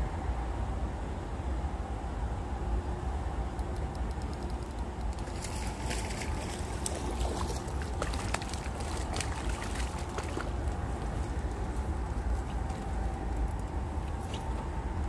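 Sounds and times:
fish splashing: 0:04.2 - 0:11.7
water trickling and gurgling: 0:04.6 - 0:14.6.

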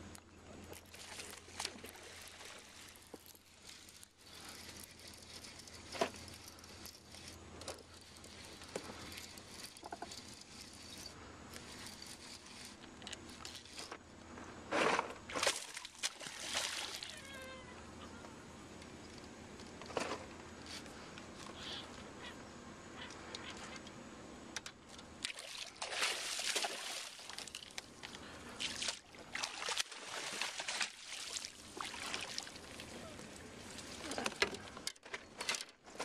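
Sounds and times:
fish splashing at surface: 0:15.4 - 0:17.1, 0:25.3 - 0:27.7.

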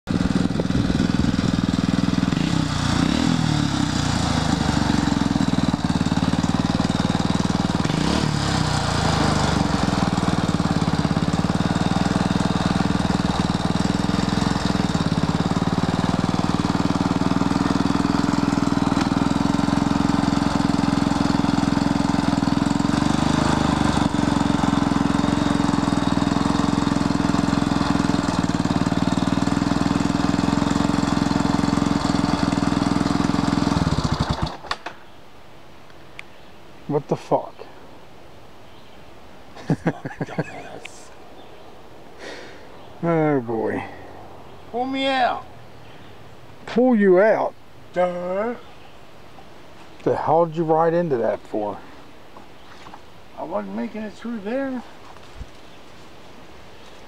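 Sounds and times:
atv engine revving: 0:00.1 - 0:34.8, 0:39.6 - 0:41.1.

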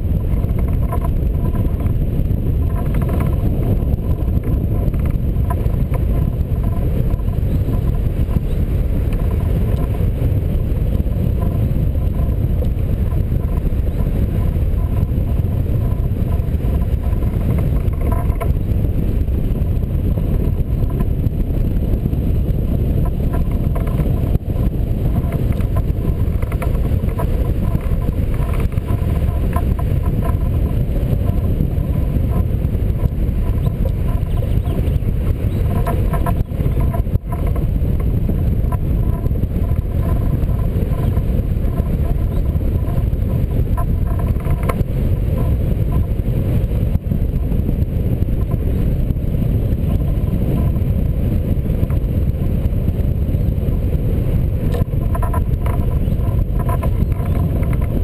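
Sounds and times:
wind noise on microphone: 0:00.0 - 0:58.0.

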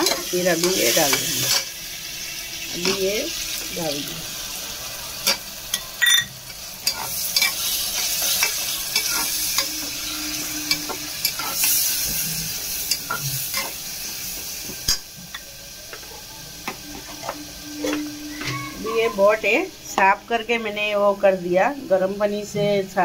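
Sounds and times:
masala sizzling in hot oil: 0:00.0 - 0:23.0
spoon clicking and scraping pot: 0:05.2 - 0:09.9, 0:10.6 - 0:12.2.

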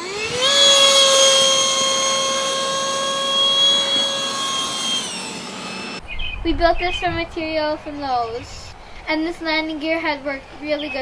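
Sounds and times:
model jet fan whining: 0:00.0 - 0:06.1.

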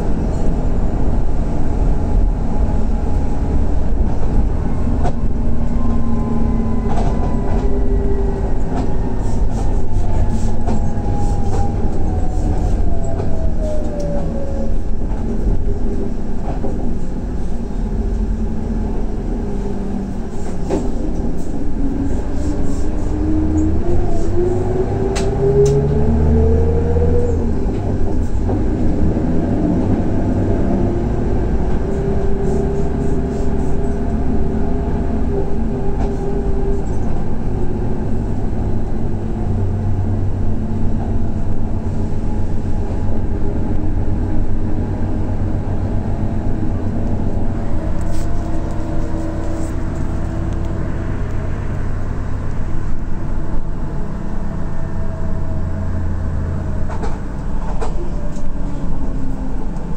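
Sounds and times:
diesel coach engine pulling away: 0:00.0 - 0:59.9.

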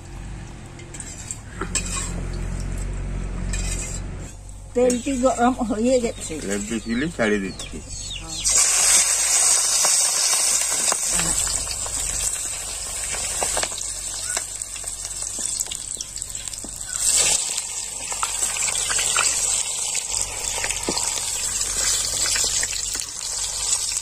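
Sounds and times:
sharp crackles and clicks: 0:07.6 - 0:24.0
chicken deep-frying in oil: 0:08.0 - 0:24.0.

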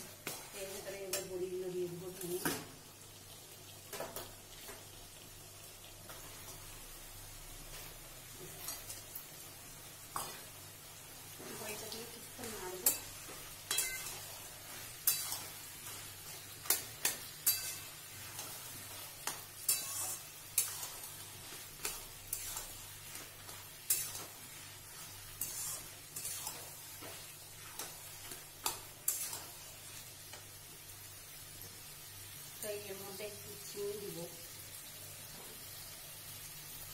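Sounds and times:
food sizzling: 0:00.0 - 0:36.9
spatula scraping metal wok: 0:12.4 - 0:30.1.

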